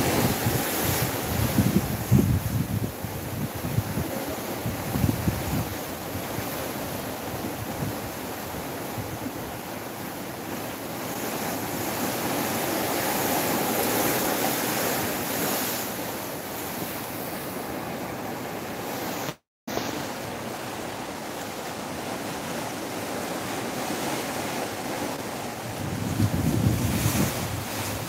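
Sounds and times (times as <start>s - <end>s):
wind buffeting microphone: 0.0s - 9.7s, 25.5s - 28.0s
sea water rushing along ship hull: 0.0s - 28.0s.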